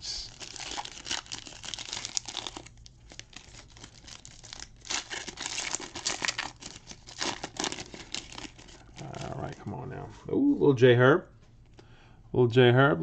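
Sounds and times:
foil wrapper crinkling and tearing: 0.3 - 9.6.

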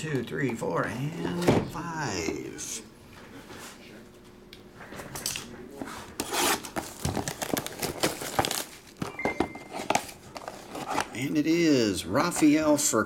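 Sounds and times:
plastic wrap tearing and crinkling: 6.2 - 9.0.

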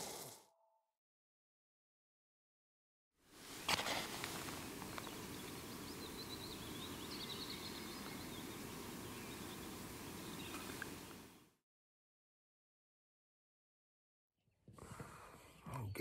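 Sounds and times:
quiet steady hiss: 3.4 - 11.4
small birds chirping: 3.4 - 11.6.

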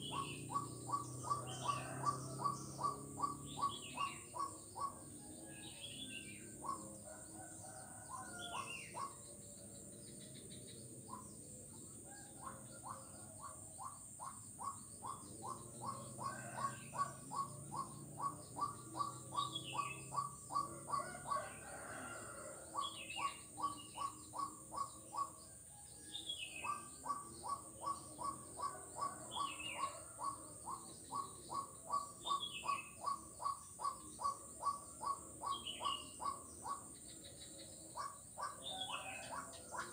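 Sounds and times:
frog calling: 0.0 - 39.9
high insect drone: 0.0 - 39.9.

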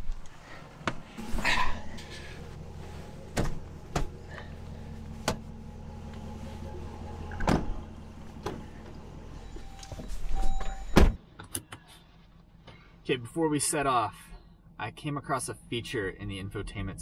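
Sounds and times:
engine low hum: 0.0 - 11.2
car seat and door clunks: 3.3 - 4.2.

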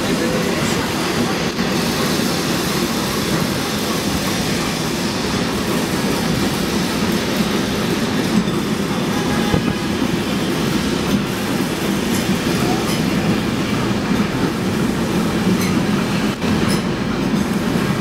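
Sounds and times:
streetcar rolling rumble and rattle: 0.0 - 18.0
sharp track clacks: 5.4 - 17.6.

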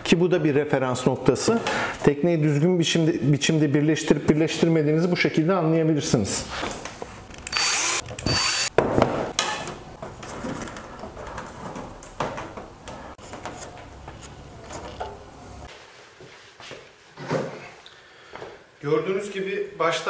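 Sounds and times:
cordless drill boring wood: 7.4 - 8.7.

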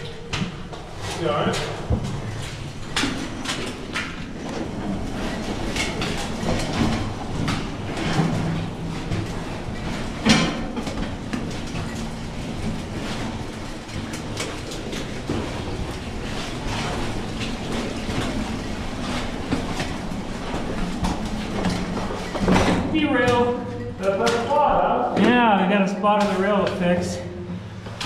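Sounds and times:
steel wheels rumbling on rail: 0.0 - 25.1
clacks and knocks: 0.0 - 25.4.

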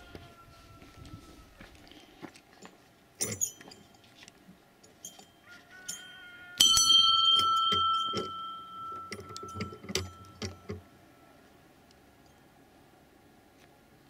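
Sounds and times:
light knocks and clinks: 2.6 - 10.8
metal bell clanging: 3.2 - 4.0, 4.9 - 10.8.

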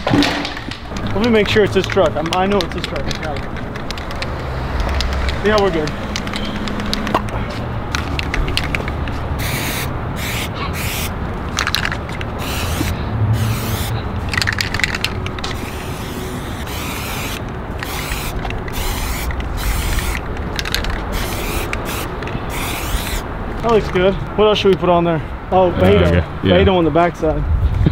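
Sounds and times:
spray paint can hissing: 2.2 - 7.2, 7.9 - 23.3.

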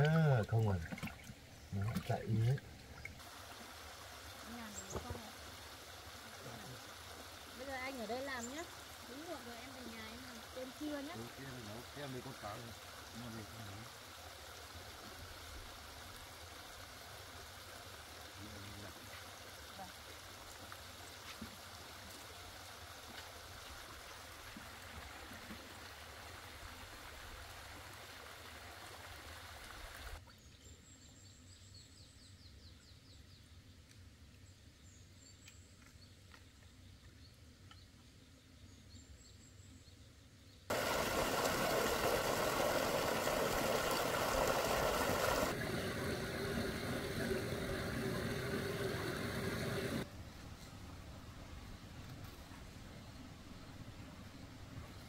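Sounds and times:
water trickling: 0.0 - 30.2, 40.7 - 50.1.

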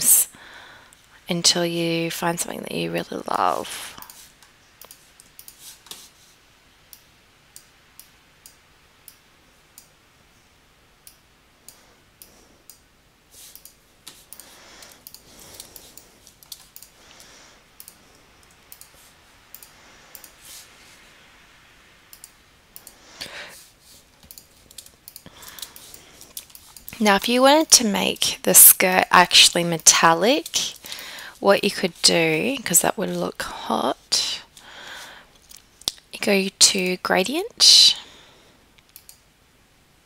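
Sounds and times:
computer mouse clicking: 4.0 - 6.2, 13.4 - 20.5, 22.1 - 23.0, 24.2 - 27.0, 38.8 - 39.2.

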